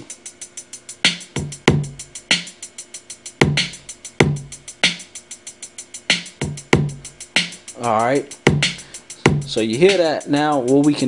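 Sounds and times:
closed hi-hat ticking: 0.0s - 11.0s
hip hop drum loop: 0.0s - 11.0s.

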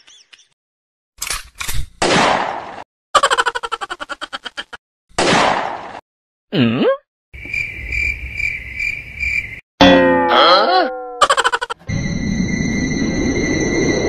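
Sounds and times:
cricket chirps: 7.4s - 9.6s, 11.4s - 14.0s.

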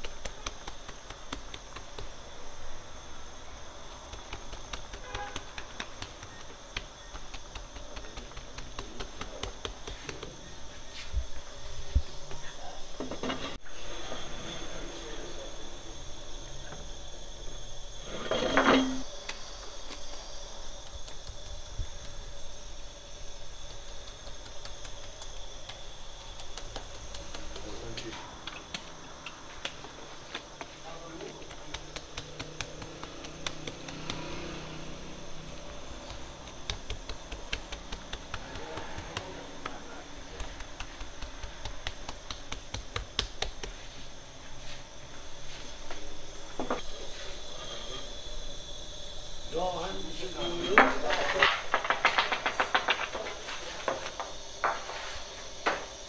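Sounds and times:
fingertips slapping dough: 0.0s - 2.4s, 3.8s - 10.7s, 19.9s - 22.2s, 23.5s - 34.6s, 35.5s - 44.2s
oven machine hum: 13.7s - 50.8s.

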